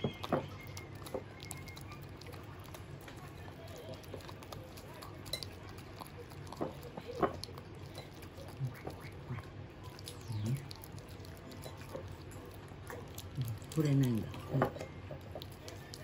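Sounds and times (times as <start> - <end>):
dog licking and smacking: 0.0 - 16.0.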